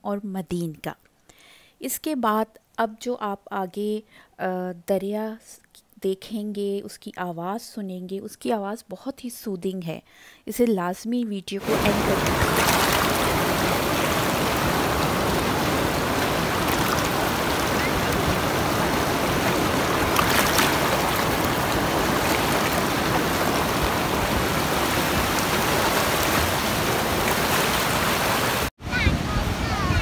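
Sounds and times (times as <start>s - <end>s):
river rushing over stones: 11.6s - 30.0s.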